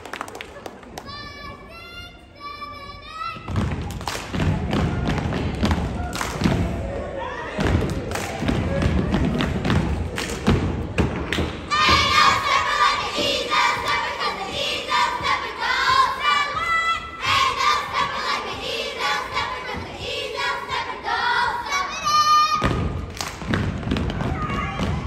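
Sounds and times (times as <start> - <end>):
people clapping in rhythm: 0.0 - 1.2, 3.5 - 6.8, 7.6 - 16.3, 23.0 - 25.0
group chanting in unison: 11.7 - 21.9.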